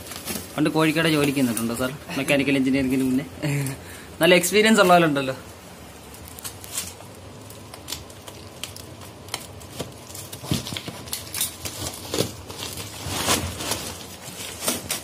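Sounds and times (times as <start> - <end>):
plastic rustling: 0.0 - 15.0
plastic sack tearing: 7.9 - 15.0.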